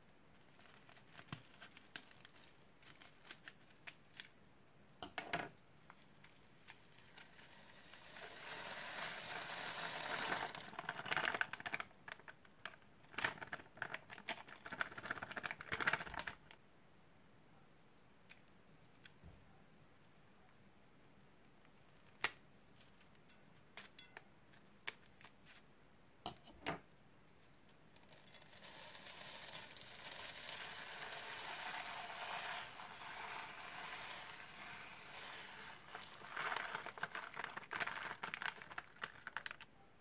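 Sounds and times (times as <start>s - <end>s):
plastic beads pouring: 6.9s - 11.9s, 28.0s - 39.6s.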